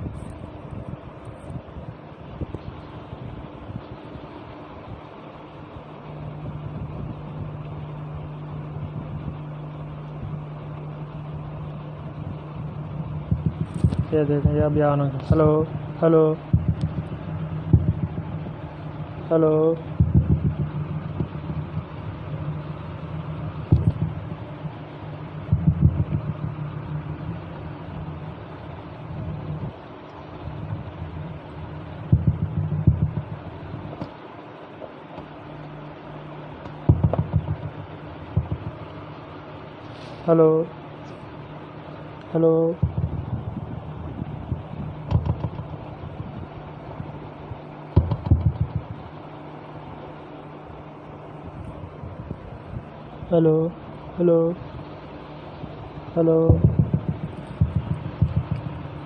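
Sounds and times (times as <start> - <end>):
speaker hum and rumble: 0.0 - 59.0
microphone thumps and knocks: 13.2 - 15.6, 16.5 - 18.6, 20.0 - 21.9, 23.6 - 24.3, 25.5 - 26.5, 32.1 - 34.2, 36.6 - 38.9, 42.8 - 47.1, 47.9 - 49.0, 56.5 - 58.8.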